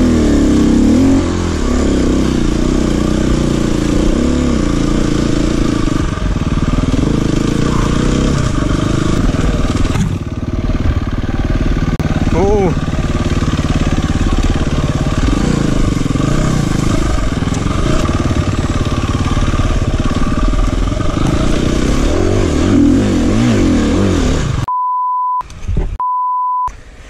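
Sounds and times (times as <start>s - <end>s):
motorcycle engine revving: 0.0s - 24.7s
steady bleep tone: 24.7s - 25.4s, 26.0s - 26.7s.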